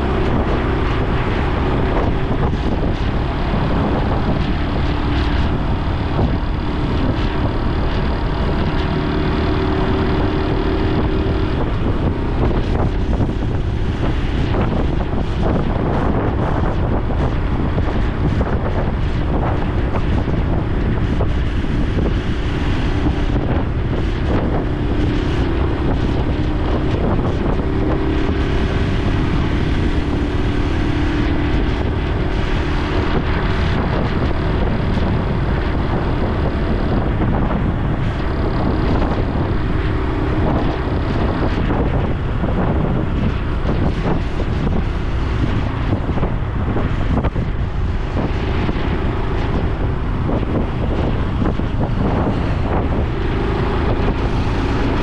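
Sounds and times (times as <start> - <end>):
motorcycle engine running: 0.0 - 55.0
wind buffeting microphone: 0.0 - 55.0.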